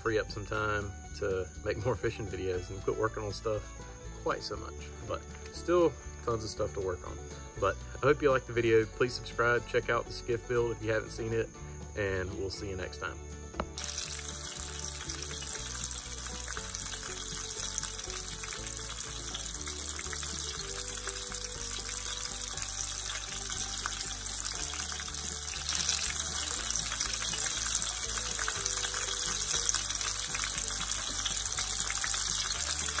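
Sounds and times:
background music with low bass: 0.0 - 33.0
crackling sizzling hiss: 12.9 - 33.0.

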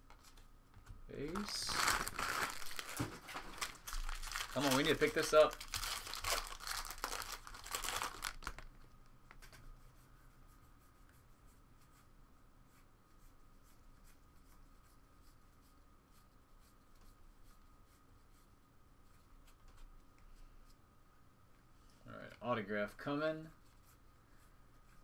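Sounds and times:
foil wrapper crinkling: 1.2 - 8.8.

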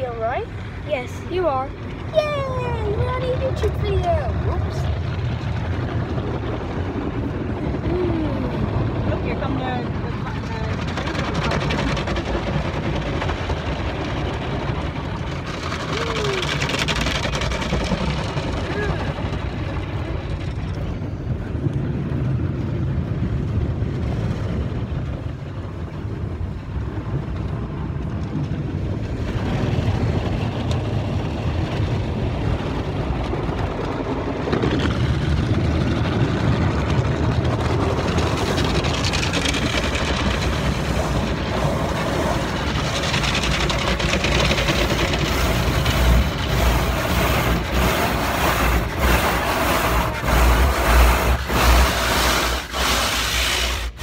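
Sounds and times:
car wash brushes scrubbing: 37.4 - 54.0
water spraying on glass: 38.4 - 54.0.

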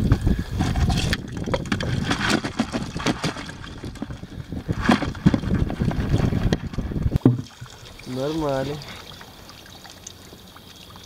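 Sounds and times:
wind buffeting microphone: 0.0 - 7.3
irregular clicks and rustles: 0.6 - 7.6.

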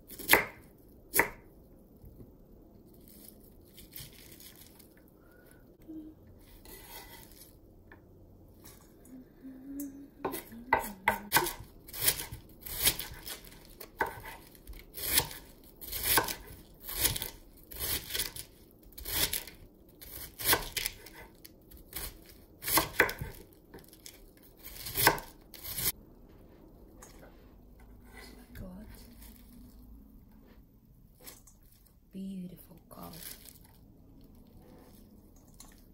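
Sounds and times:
knife slicing cabbage on wooden board: 11.1 - 21.2, 21.8 - 25.9.

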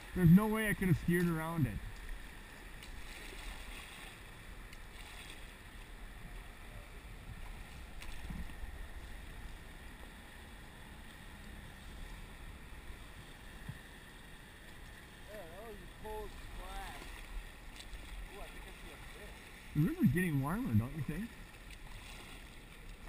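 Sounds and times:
wind rumble on microphone: 0.0 - 14.0
river water rushing and slapping: 0.0 - 23.0
light paddle splashes: 1.1 - 6.4, 7.3 - 10.1, 14.6 - 19.8, 21.2 - 23.0.

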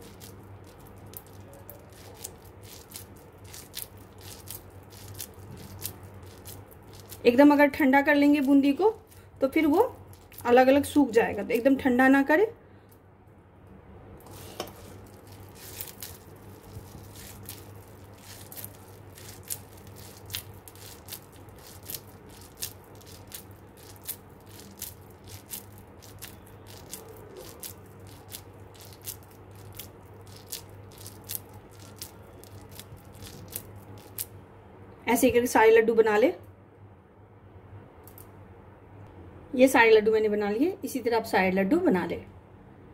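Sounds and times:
small clicks and crackles: 0.0 - 7.3, 8.4 - 10.5, 14.3 - 34.3.

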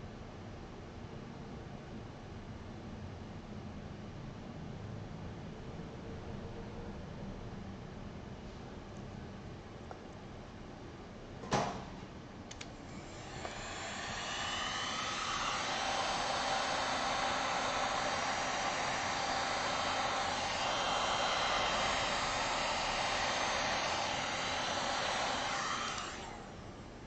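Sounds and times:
heat gun fan blowing: 12.5 - 27.0.

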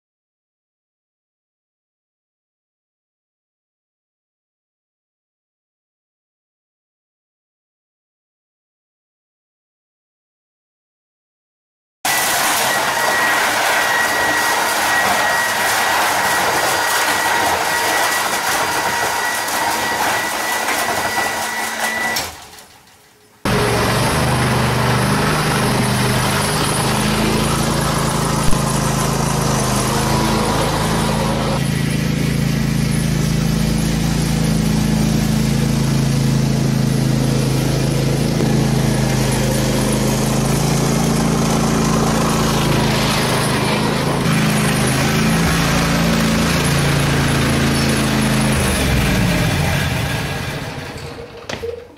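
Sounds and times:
lawn mower engine running: 12.1 - 22.4, 23.4 - 51.9.

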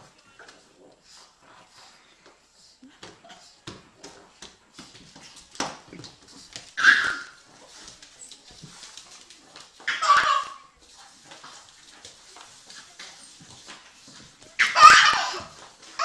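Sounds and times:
dog high-pitched vocal sounds: 6.8 - 7.4, 9.8 - 10.7, 14.6 - 15.5.

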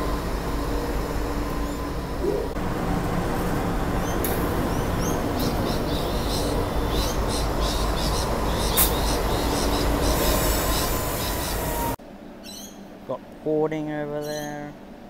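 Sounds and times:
locomotive engine idling: 0.0 - 11.9
small birds chirping: 4.0 - 11.7, 12.4 - 12.8, 14.2 - 14.7.

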